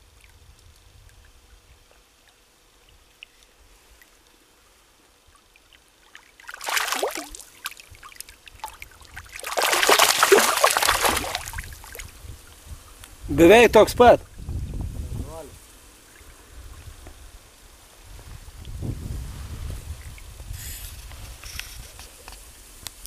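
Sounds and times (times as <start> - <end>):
fish splashing in water: 5.4 - 12.1.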